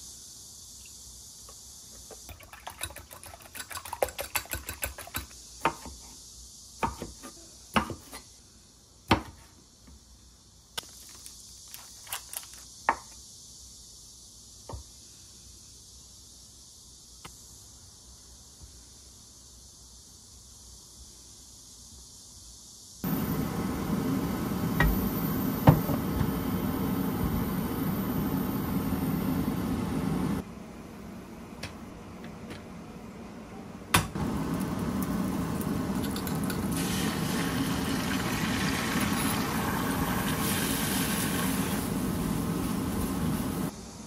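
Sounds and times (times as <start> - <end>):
food sizzling in frying pan: 34.2 - 43.7.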